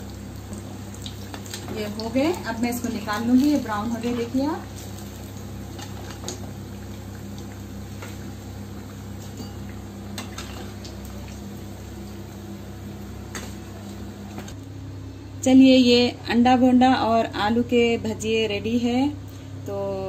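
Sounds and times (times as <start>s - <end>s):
food deep-frying in oil: 0.0s - 14.6s.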